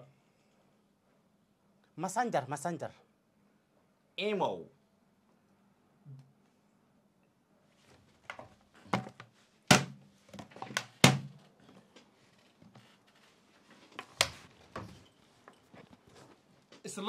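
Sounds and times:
plastic water bottle thunks and crackles: 8.9s - 11.4s.

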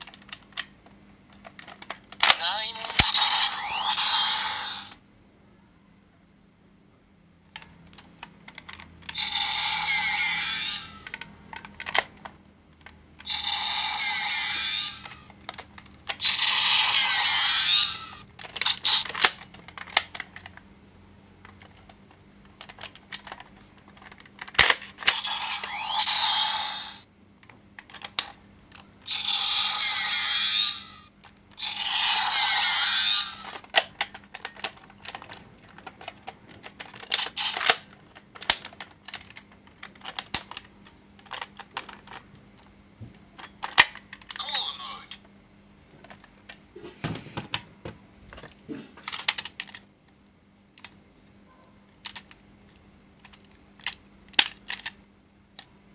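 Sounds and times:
toy electronic sound effects: 2.2s - 5.0s, 9.0s - 12.0s, 13.2s - 15.3s, 16.1s - 19.4s, 25.0s - 27.0s, 29.0s - 33.8s, 37.0s - 37.9s, 44.3s - 45.2s.

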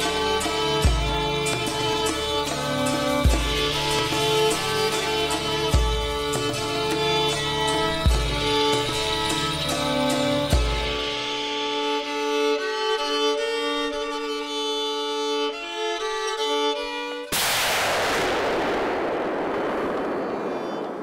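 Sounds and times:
violin-led background music: 0.0s - 18.7s
rifle shot with echo: 17.3s - 21.0s.

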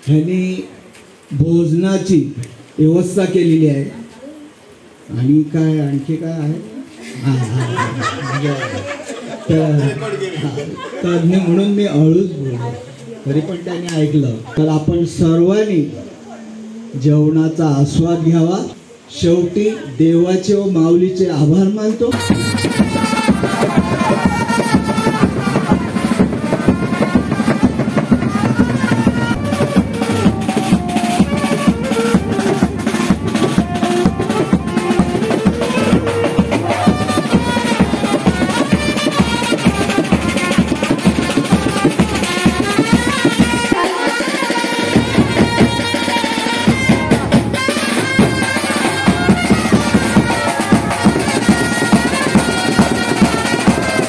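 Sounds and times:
music with drum beat: 22.1s - 54.0s.

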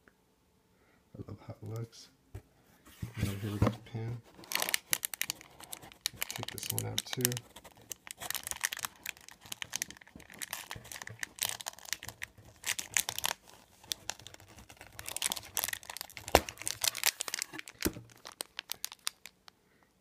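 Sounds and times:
plastic bag crinkling: 4.3s - 19.6s.

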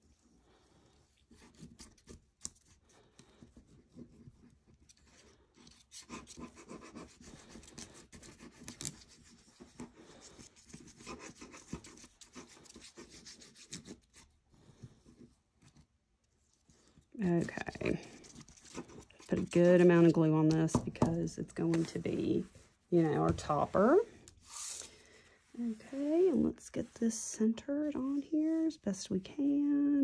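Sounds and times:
scraping on paper: 1.3s - 14.3s.

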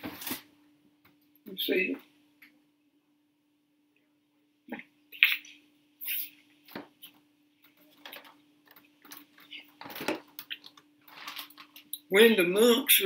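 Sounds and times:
paper pages rustling: 0.0s - 0.5s, 7.7s - 12.0s
faint steady hum: 0.0s - 13.0s.

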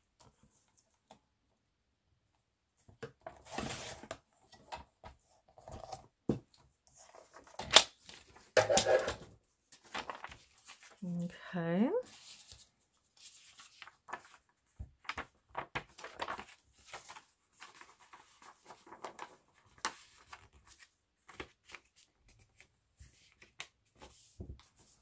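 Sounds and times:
paper pages rustling: 6.9s - 11.0s, 12.1s - 25.0s.

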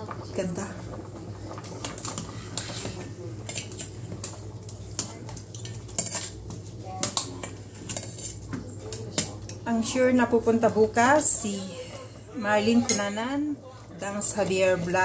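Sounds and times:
utensil scraping a pot: 1.5s - 4.0s, 5.7s - 6.5s, 7.1s - 8.4s.

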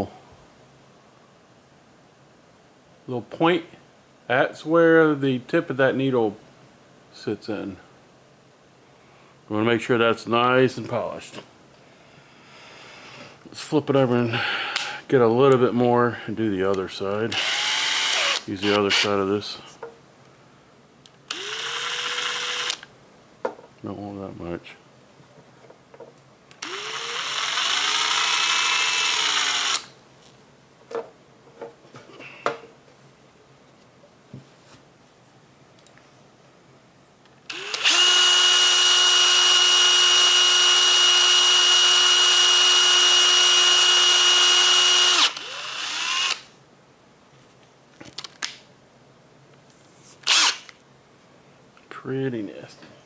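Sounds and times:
cordless drill spinning: 17.3s - 19.1s, 21.3s - 22.9s, 26.6s - 30.0s, 37.5s - 46.5s, 50.2s - 50.7s.

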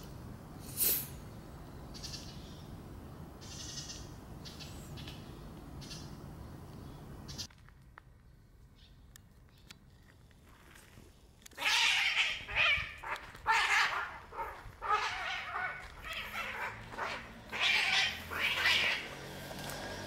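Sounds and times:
cats screeching while fighting: 11.6s - 19.2s.

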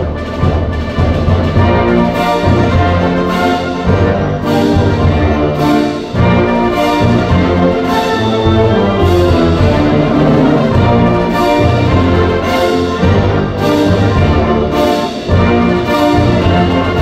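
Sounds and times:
brass band playing chords: 0.0s - 17.0s.

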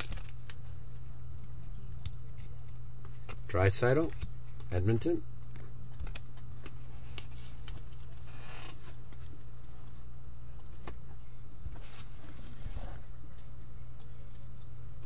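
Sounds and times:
foil pack rustling: 0.0s - 0.6s
low electrical hum: 0.0s - 15.0s.

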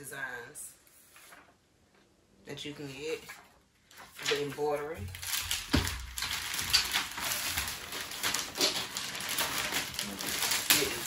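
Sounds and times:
paper rustling and crinkling: 0.9s - 1.6s, 3.1s - 11.0s.

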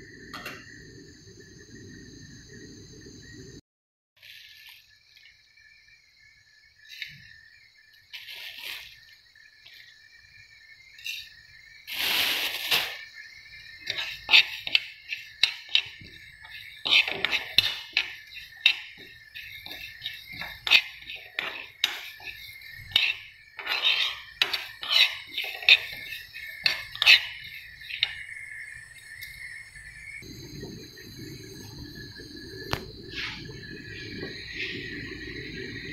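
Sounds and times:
metal spoon scraping a pan: 13.8s - 28.3s.

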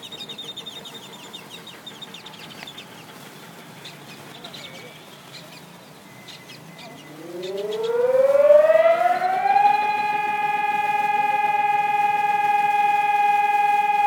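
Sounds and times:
siren winding up: 6.7s - 14.0s.

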